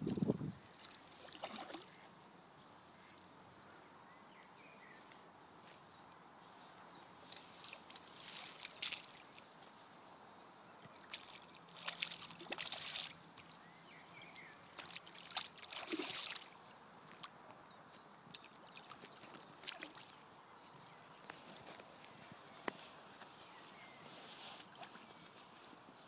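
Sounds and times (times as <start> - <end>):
fish splashing in water: 1.2 - 1.9, 11.0 - 13.5, 14.8 - 17.3, 18.3 - 20.2.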